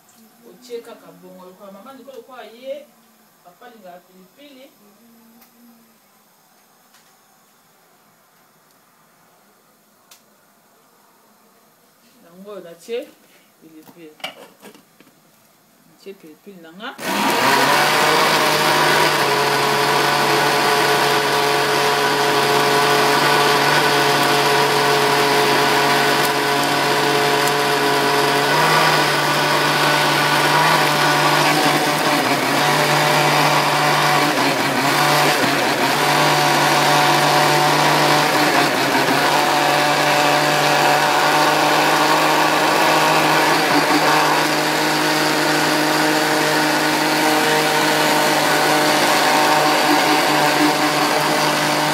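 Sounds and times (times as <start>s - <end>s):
blender motor humming: 17.0s - 51.9s.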